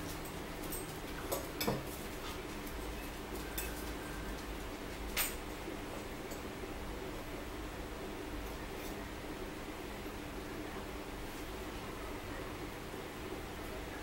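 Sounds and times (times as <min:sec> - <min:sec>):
low room hum: 0:00.0 - 0:14.0
cutlery clinking on plastic plates: 0:01.3 - 0:02.0.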